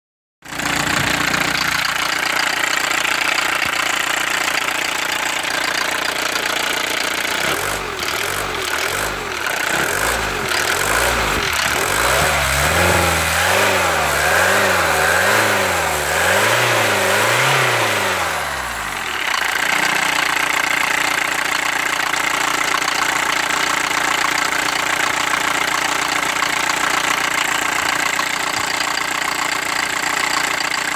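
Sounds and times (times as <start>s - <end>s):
diesel engine idling and revving: 0.4s - 30.9s.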